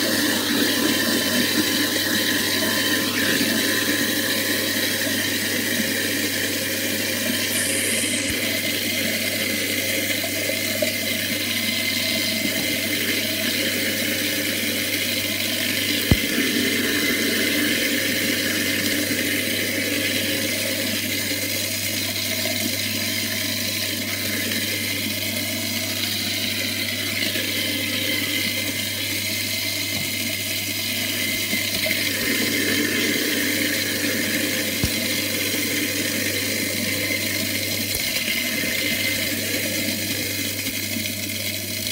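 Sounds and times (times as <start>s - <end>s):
water rushing: 0.0s - 21.9s
garbage disposal motor hum: 0.0s - 41.9s.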